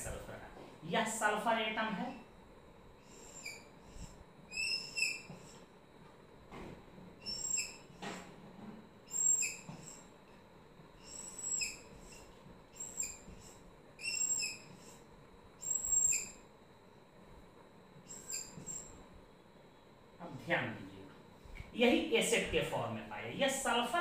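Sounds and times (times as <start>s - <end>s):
marker squeaking on whiteboard: 3.0s - 5.7s, 7.2s - 8.2s, 9.1s - 10.1s, 11.0s - 16.4s, 18.1s - 19.0s.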